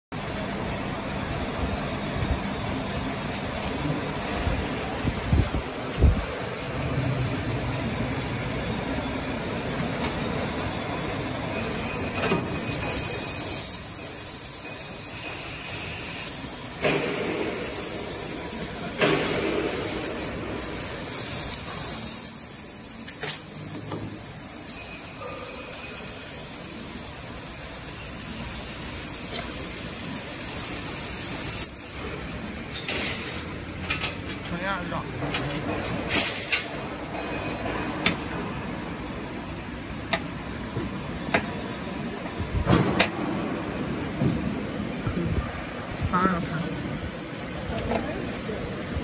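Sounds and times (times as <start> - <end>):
steady machine hum: 0.2 - 32.6
hiss of assist gas: 12.0 - 27.0.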